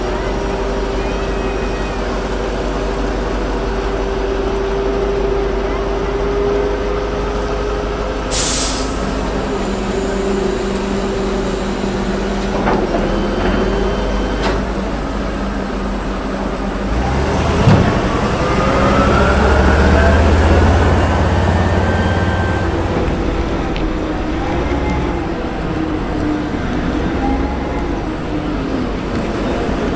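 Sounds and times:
heavy vehicle engine revving: 0:00.0 - 0:29.9
air brake hiss: 0:08.3 - 0:12.3.

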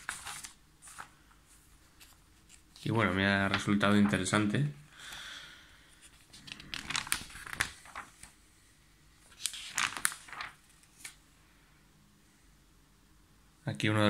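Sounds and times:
magazine pages rustling: 0:00.0 - 0:05.2, 0:05.8 - 0:08.4, 0:09.2 - 0:11.2.

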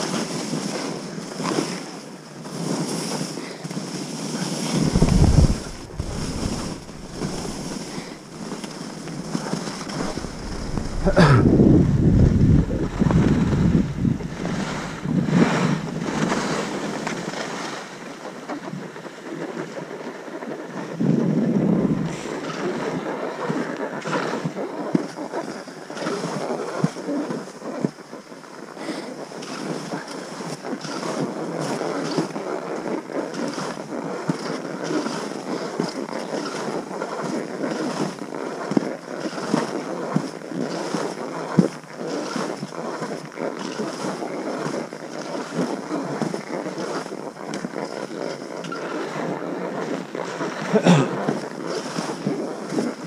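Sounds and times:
skis hissing through snow: 0:02.7 - 0:18.0
wind buffeting microphone: 0:04.6 - 0:17.4, 0:20.9 - 0:22.8.

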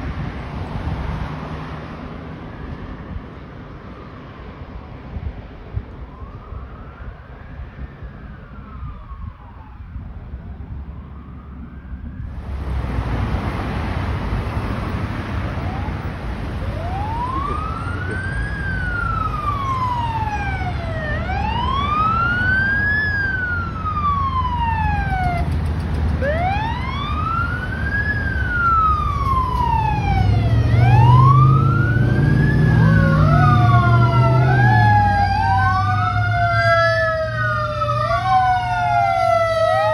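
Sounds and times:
traffic noise: 0:00.0 - 0:39.9
fire engine siren wailing: 0:01.2 - 0:04.6, 0:05.7 - 0:39.9
deep rising and falling tone: 0:26.2 - 0:38.4.

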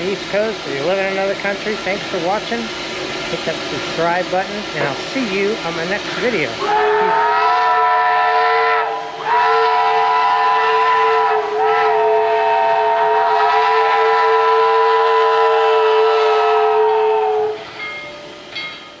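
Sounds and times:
steam whistle chord: 0:06.6 - 0:18.3.

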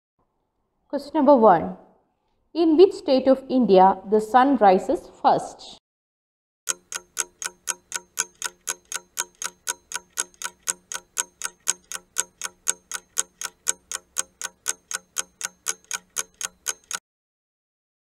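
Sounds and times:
clock ticking: 0:06.7 - 0:17.0.

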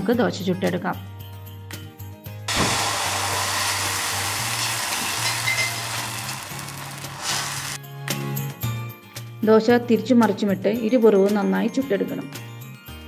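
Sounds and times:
batter sizzling on hot pan: 0:02.5 - 0:07.8.

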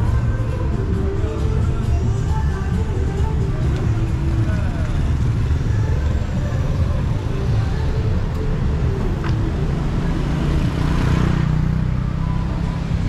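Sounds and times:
traffic engines rumbling: 0:00.0 - 0:13.0
vehicle passing: 0:04.1 - 0:13.0.

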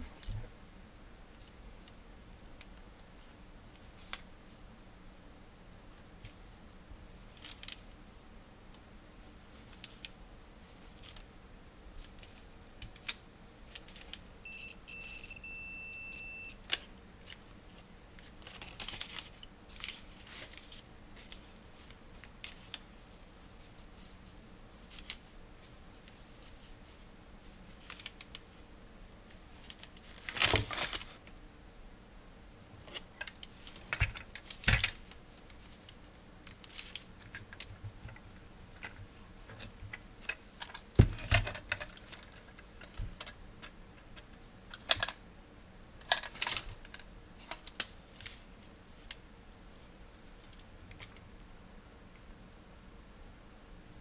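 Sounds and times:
hands handling plastic parts: 0:12.0 - 0:14.3, 0:16.6 - 0:22.9, 0:32.8 - 0:45.2, 0:46.0 - 0:49.2.

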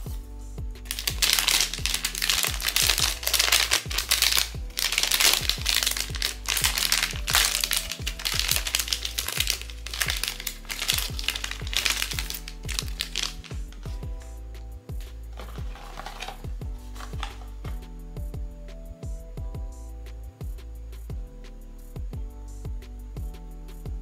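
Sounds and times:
background music: 0:00.0 - 0:24.0
packaging crinkling and tearing: 0:00.9 - 0:13.8, 0:15.4 - 0:16.4, 0:17.0 - 0:17.5.

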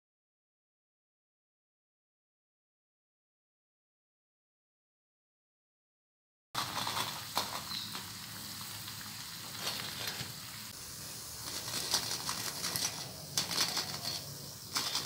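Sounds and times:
hot oil sizzling and crackling: 0:06.6 - 0:15.0.

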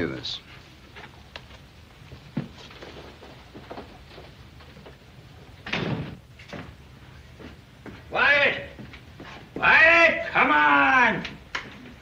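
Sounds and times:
soft footsteps: 0:00.4 - 0:05.6, 0:06.2 - 0:09.7.

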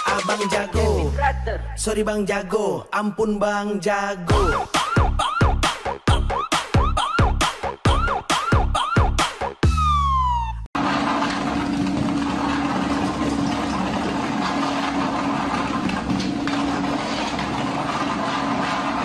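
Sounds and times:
treadmill belt whirring: 0:10.8 - 0:19.0
treadmill motor hum: 0:10.8 - 0:19.0.

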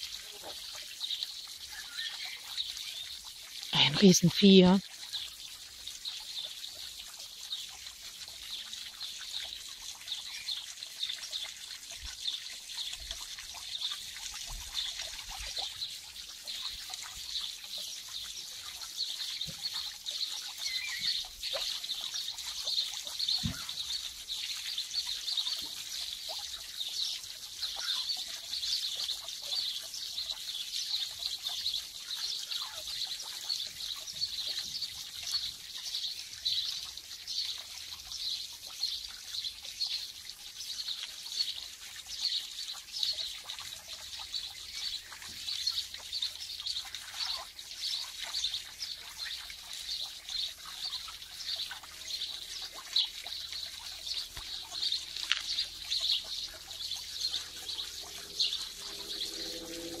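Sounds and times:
birds chirping: 0:20.6 - 0:21.6, 0:51.4 - 1:00.0.

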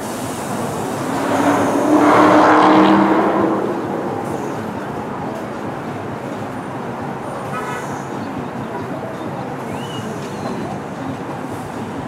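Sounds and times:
train motor humming: 0:00.0 - 0:07.1
subway train rumbling: 0:00.0 - 0:12.0.

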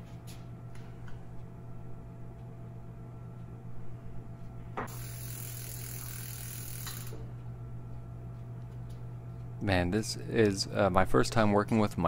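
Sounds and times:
steady low hum: 0:00.0 - 0:12.0
bike chain whirring over cassette: 0:04.9 - 0:07.2.

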